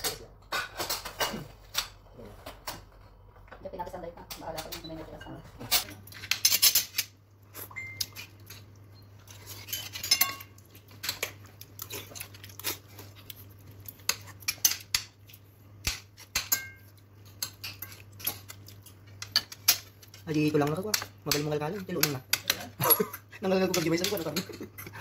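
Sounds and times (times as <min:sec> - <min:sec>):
cutlery clinking on plates: 0:09.3 - 0:11.4, 0:15.9 - 0:20.2.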